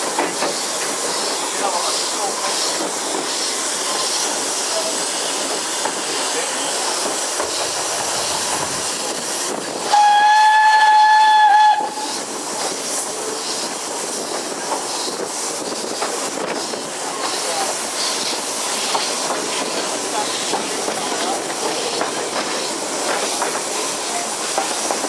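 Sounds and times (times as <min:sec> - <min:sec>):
train hiss and rail clatter: 0:00.0 - 0:25.0
steam whistle blast: 0:09.9 - 0:12.1.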